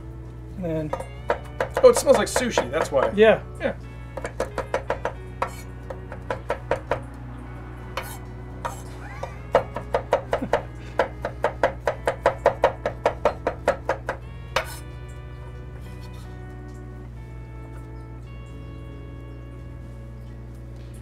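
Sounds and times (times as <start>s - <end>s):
knife chopping on cutting board: 0.9s - 3.2s, 4.2s - 7.0s, 8.0s - 14.8s.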